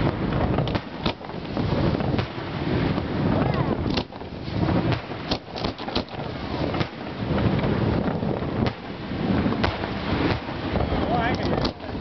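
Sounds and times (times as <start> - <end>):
firework shells bursting: 0.0 - 12.0
wind rumble on microphone: 0.0 - 12.0.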